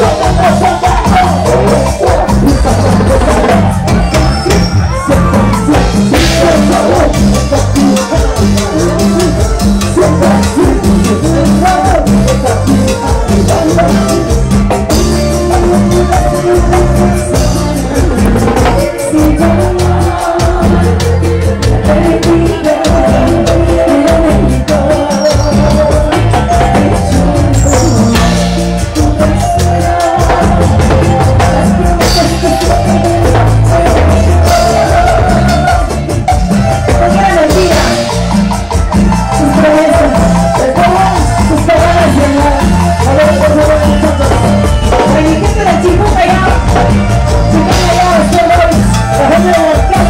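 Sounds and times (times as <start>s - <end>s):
live dance band playing: 0.0s - 50.0s
shaken percussion: 0.0s - 50.0s.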